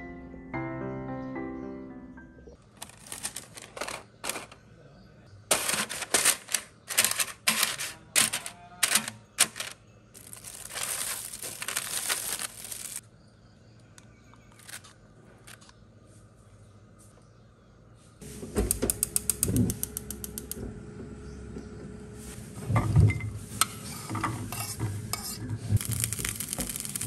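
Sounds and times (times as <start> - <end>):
paper liner crinkling: 2.6 - 4.6, 5.5 - 13.0, 14.4 - 15.7, 25.8 - 27.0.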